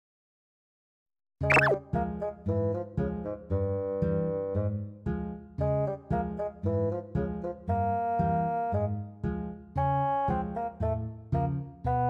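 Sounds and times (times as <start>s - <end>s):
plucked guitar-like instrumental tune: 1.5s - 1.8s.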